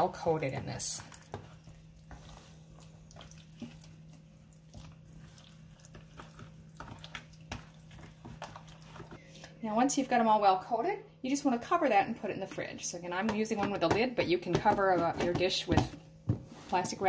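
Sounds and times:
wet squelches of chicken: 1.0s - 9.2s.

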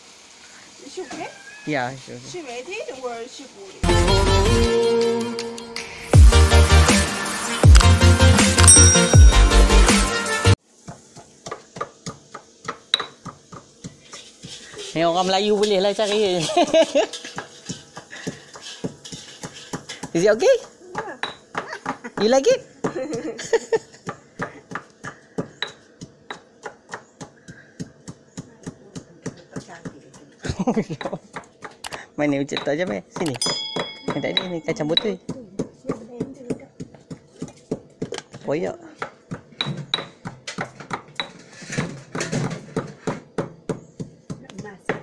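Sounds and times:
stone pestle pounding in mortar: 32.6s - 38.4s.

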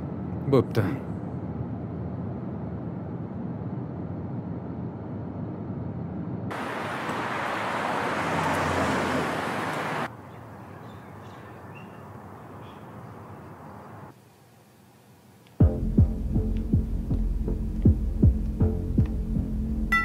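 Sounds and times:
car road noise rumble: 1.2s - 10.1s
rushing noise: 1.5s - 10.1s
faint bird chirps: 10.2s - 13.7s.

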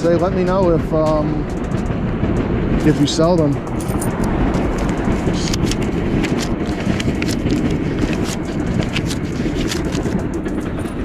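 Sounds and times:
low rumble: 0.1s - 11.0s
banknotes rustling and flicking: 2.8s - 11.0s.

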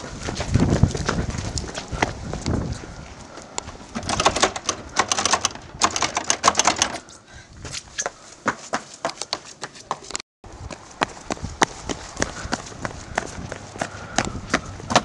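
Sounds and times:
footsteps running on pavement: 0.0s - 3.3s, 7.6s - 15.0s.

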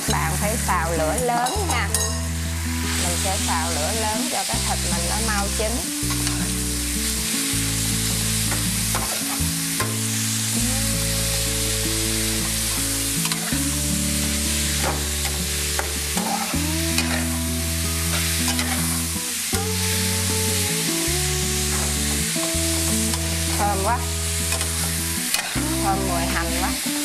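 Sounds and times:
low background music: 0.0s - 27.0s
meat sizzling in a pan: 0.0s - 27.0s
metal spatula scraping a pan: 16.2s - 17.3s, 18.1s - 19.0s.

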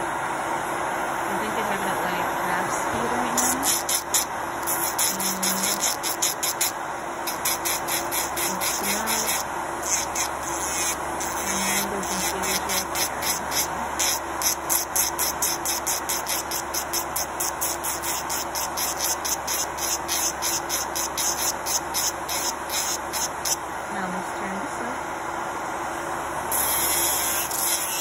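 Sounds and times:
dust collector fan: 0.0s - 28.0s
electric nail file grinding: 3.0s - 23.6s, 26.5s - 28.0s.

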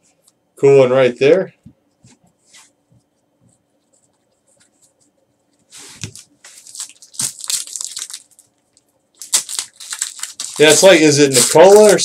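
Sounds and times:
foil wrapper tearing and crinkling: 6.0s - 12.0s.

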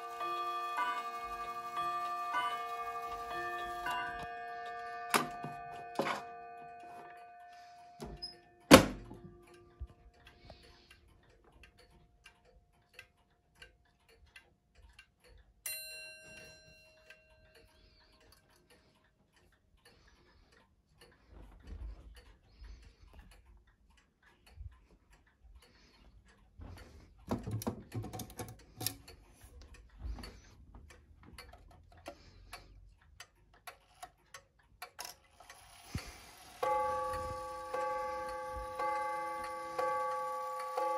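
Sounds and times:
ringing clock strike: 0.0s - 9.8s, 15.6s - 17.8s, 36.4s - 40.9s
wall clocks ticking: 0.0s - 40.9s.

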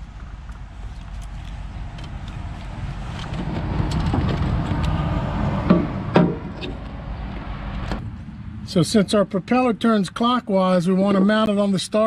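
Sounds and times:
low rumble: 1.5s - 10.1s.

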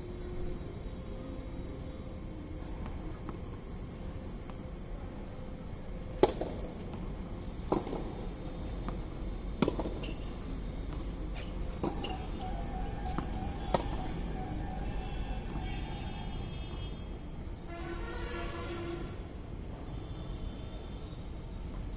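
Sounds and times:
tennis ball hit by racket: 6.1s - 6.9s, 7.6s - 8.2s, 9.6s - 10.2s, 13.1s - 14.2s
tennis ball bouncing on court: 6.2s - 7.0s, 7.6s - 9.0s, 9.6s - 10.3s, 13.1s - 14.2s.

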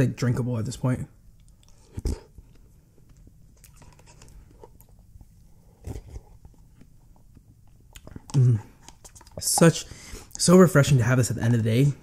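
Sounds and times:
wet mouth eating sounds: 1.4s - 10.4s.

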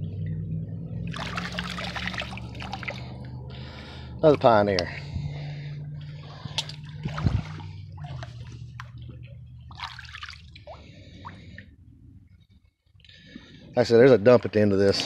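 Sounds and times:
creek water splashing: 1.1s - 3.2s, 6.2s - 8.9s, 9.7s - 11.5s.

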